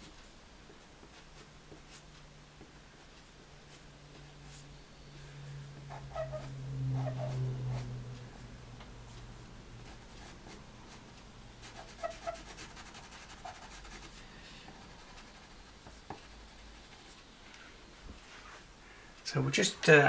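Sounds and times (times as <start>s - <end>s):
pencil scratching on paper: 5.9s - 8.0s, 9.8s - 11.0s, 11.6s - 17.2s.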